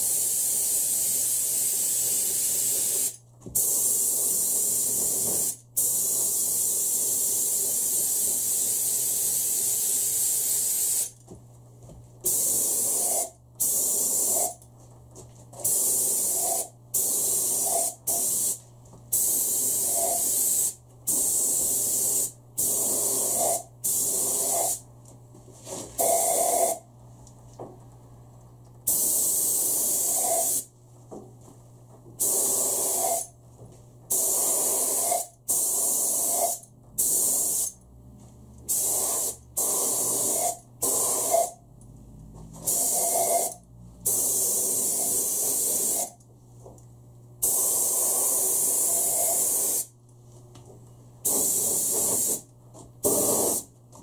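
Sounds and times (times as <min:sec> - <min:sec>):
spray gun hissing bursts: 0:15.6 - 0:24.8, 0:28.9 - 0:30.6, 0:32.2 - 0:33.3, 0:34.1 - 0:37.7, 0:38.7 - 0:41.5, 0:42.7 - 0:43.5, 0:51.2 - 0:52.4.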